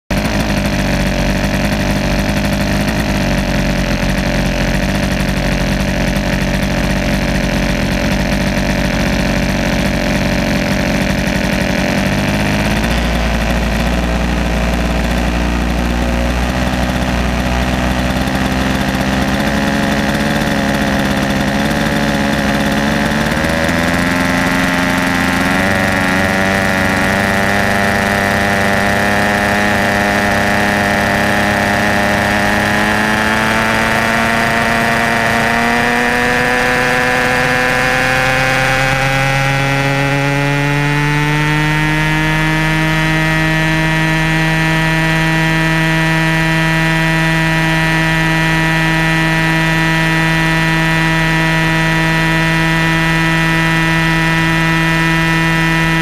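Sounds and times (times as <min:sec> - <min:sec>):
model helicopter engine running: 0:00.1 - 0:56.0.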